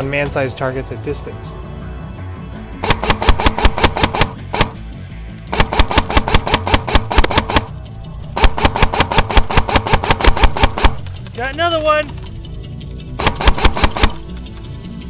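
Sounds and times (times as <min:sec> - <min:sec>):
background music: 0:00.0 - 0:15.0
airsoft rifle automatic fire: 0:02.8 - 0:04.8, 0:05.5 - 0:07.7, 0:08.4 - 0:11.1, 0:13.2 - 0:14.2.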